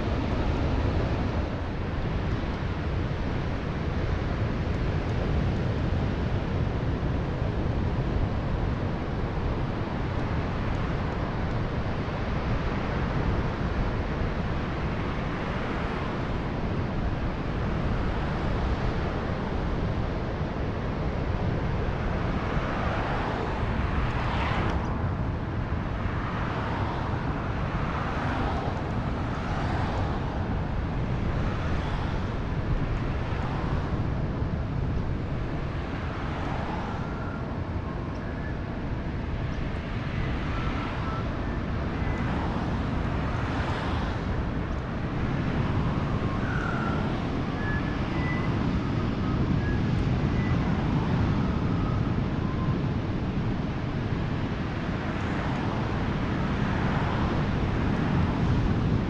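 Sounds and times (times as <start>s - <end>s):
passing road traffic: 0.0s - 59.0s
wind rush: 0.0s - 59.0s.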